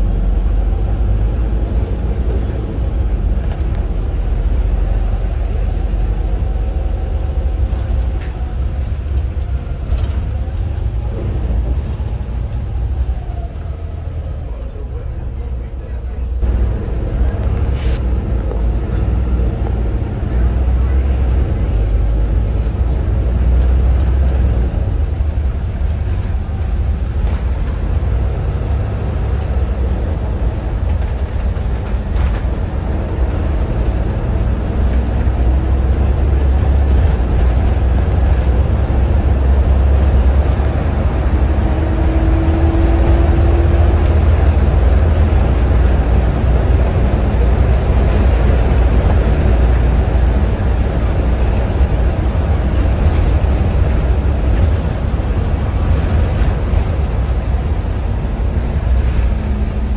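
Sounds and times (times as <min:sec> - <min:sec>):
bus diesel engine rumble: 0:00.0 - 0:59.9
road noise: 0:00.0 - 0:59.9.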